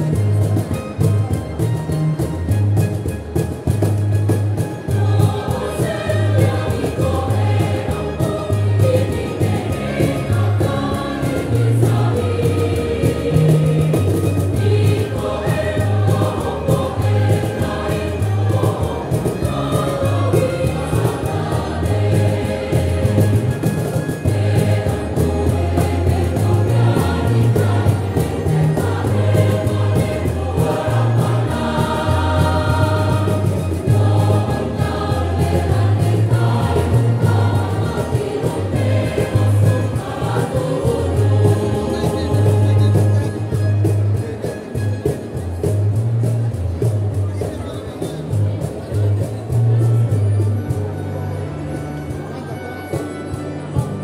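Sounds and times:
church choir singing: 4.5 - 43.6.

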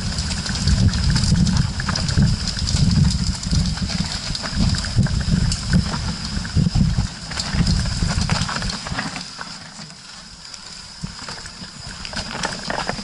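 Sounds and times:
wind buffeting microphone: 0.0 - 9.0
bike chain and frame rattling: 0.0 - 13.0
bike tyre rumble: 0.0 - 13.0.

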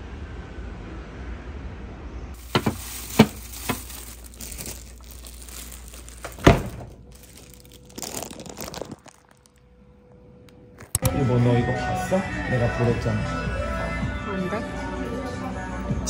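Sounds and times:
plastic crinkling: 2.4 - 9.7.

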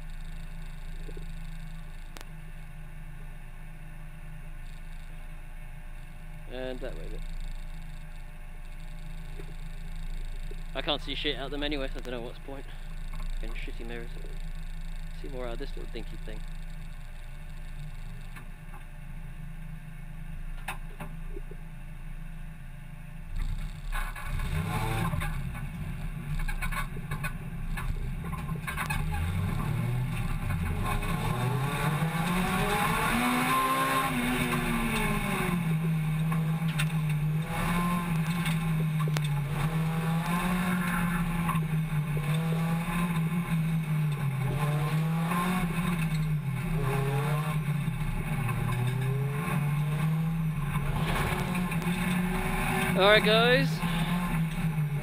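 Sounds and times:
car engine revving: 6.4 - 18.4, 23.3 - 55.0.

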